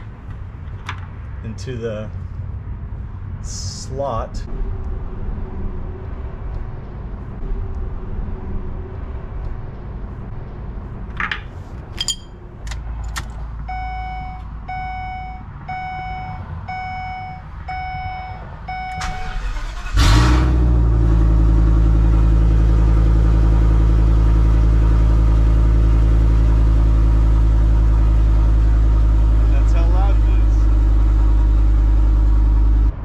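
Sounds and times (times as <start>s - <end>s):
dashboard warning chime beeps: 13.7s - 19.3s.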